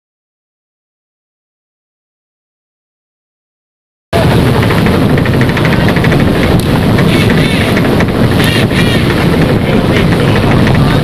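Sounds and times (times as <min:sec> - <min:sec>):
boat engine running: 0:04.2 - 0:11.0
wind noise on microphone: 0:04.2 - 0:11.0.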